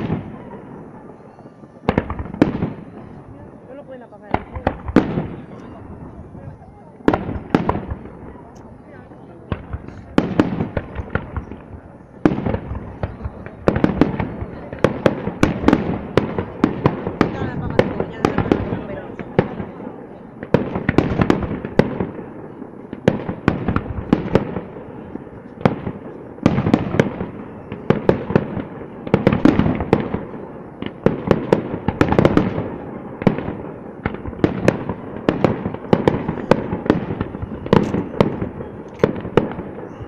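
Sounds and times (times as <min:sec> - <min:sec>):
firework shells bursting: 0:30.8 - 0:40.0.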